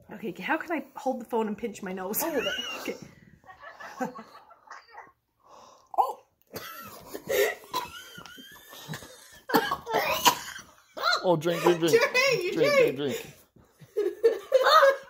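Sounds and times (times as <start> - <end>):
woman coughing and gagging: 2.1 - 3.2, 6.0 - 13.4, 14.0 - 15.0.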